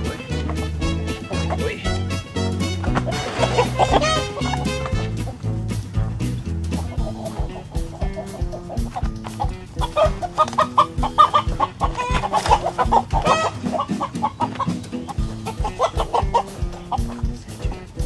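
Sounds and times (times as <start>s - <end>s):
background music with steady beat: 0.0s - 18.0s
chickens clucking and squawking: 0.0s - 18.0s.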